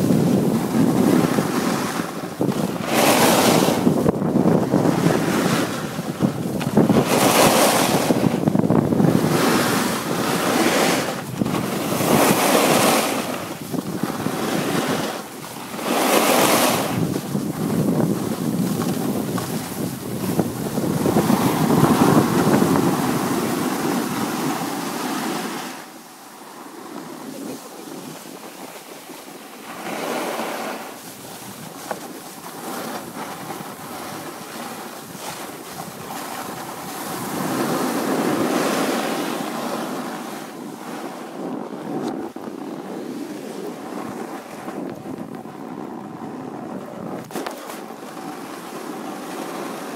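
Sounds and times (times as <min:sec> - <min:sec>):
skis scraping on hard snow: 0:00.0 - 0:25.8, 0:26.4 - 0:49.9
wind buffeting microphone: 0:00.0 - 0:49.9.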